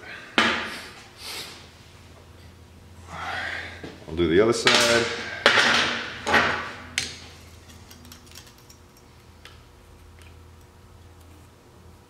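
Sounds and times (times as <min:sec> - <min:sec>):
metal tools clinking on engine: 0:07.0 - 0:09.2.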